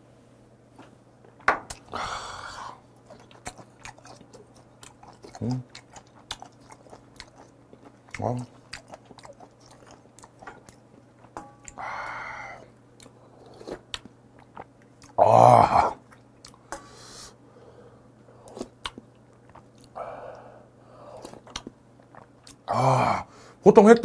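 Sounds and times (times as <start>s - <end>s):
chewing: 2.9s - 15.2s, 16.0s - 16.8s, 18.4s - 22.7s.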